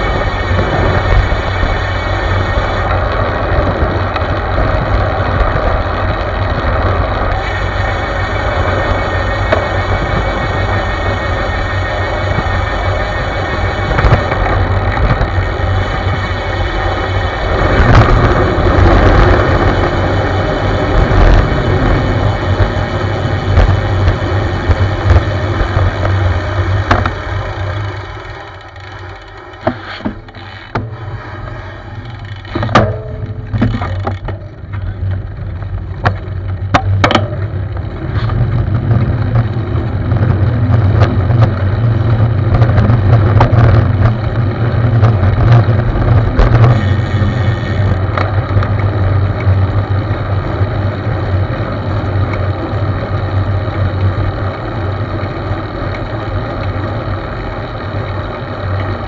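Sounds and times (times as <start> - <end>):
wind buffeting microphone: 0.0 - 27.8
road noise: 0.0 - 59.0
sharp knocks: 36.0 - 37.4.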